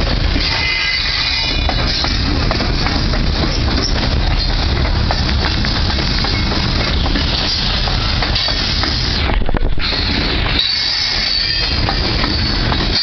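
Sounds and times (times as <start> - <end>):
high squeal from train wheels: 0.0 - 13.0
train wheels rolling on rails: 0.0 - 13.0.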